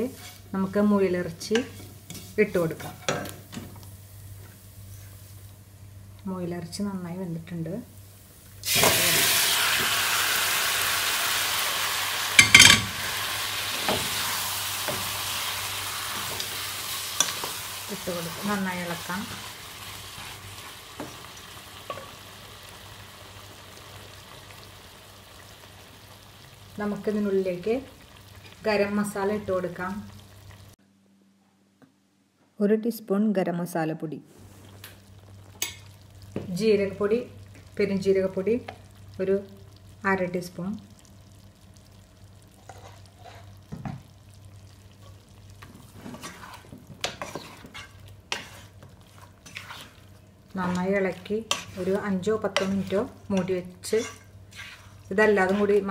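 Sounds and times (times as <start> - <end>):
wooden spatula scraping pot: 0.0 - 0.5, 1.4 - 3.4, 42.6 - 43.6, 45.0 - 55.9
meat sizzling in oil: 8.0 - 30.8, 34.7 - 55.9.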